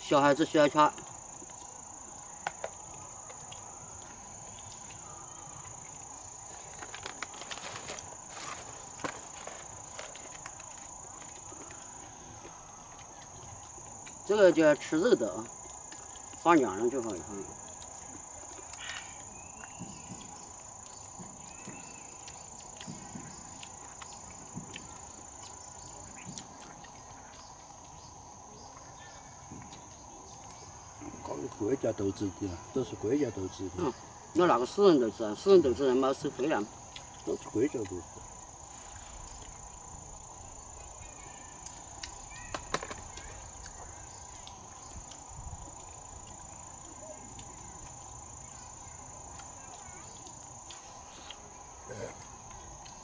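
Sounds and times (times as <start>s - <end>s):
insects trilling: 0.0s - 53.0s
faint clicks and rustles: 5.6s - 14.3s.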